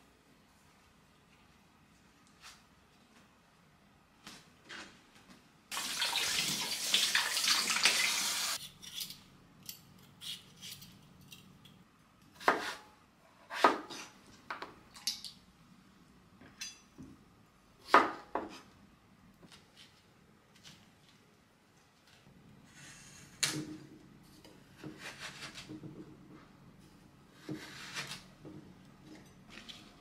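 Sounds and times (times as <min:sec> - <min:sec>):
kitchen tap running: 0:05.7 - 0:08.6.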